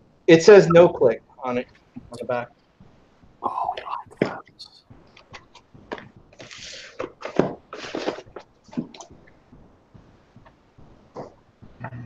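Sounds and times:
cardboard boxes rustling and scraping: 5.9s - 9.0s.

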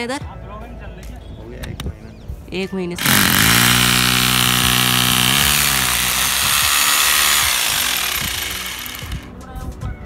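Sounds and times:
electric drill grinding into concrete: 3.0s - 9.3s.

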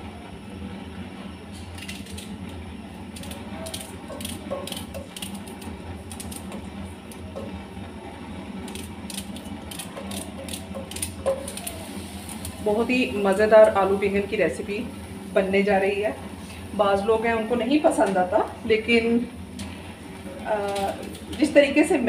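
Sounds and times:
steady low hum: 0.0s - 22.0s.

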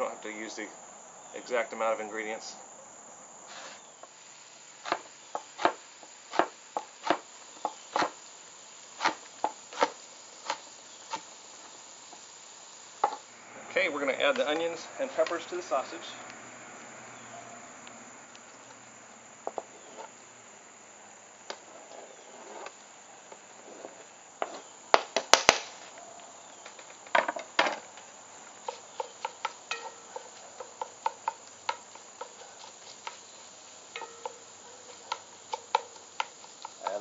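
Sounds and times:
faint sizzle: 0.0s - 25.0s, 25.7s - 37.0s
wooden spoon knocking and scraping pot: 28.6s - 33.2s, 34.0s - 37.0s.

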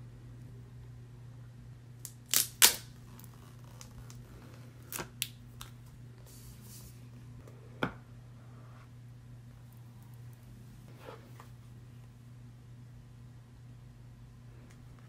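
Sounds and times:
plastic wrap tearing: 2.0s - 4.2s.

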